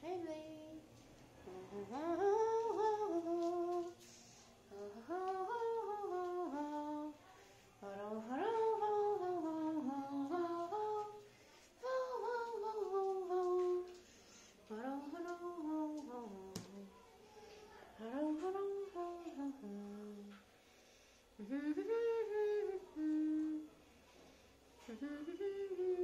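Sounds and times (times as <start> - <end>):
person humming: 21.4 - 23.7.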